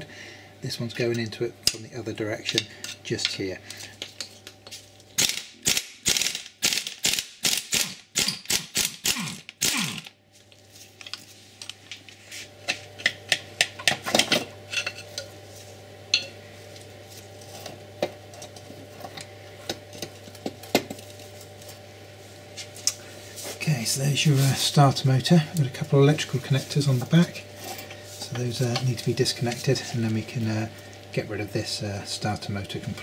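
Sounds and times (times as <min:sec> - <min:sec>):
hand ratchet clicking: 0:05.2 - 0:10.1.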